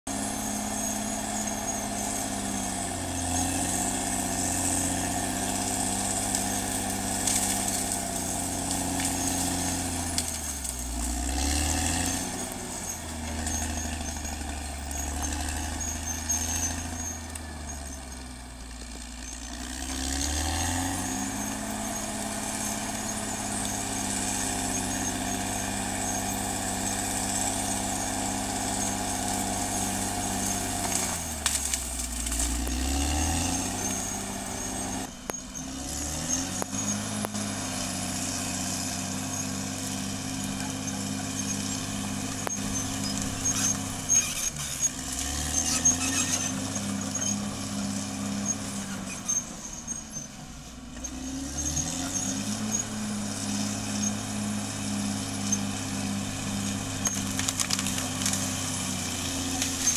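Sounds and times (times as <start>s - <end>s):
bulldozer diesel engine running: 0.1s - 59.9s.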